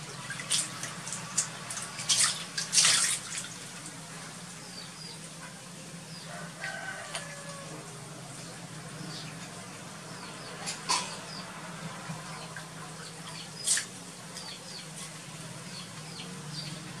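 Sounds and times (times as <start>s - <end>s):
water splashing in a tub: 0.0s - 4.3s.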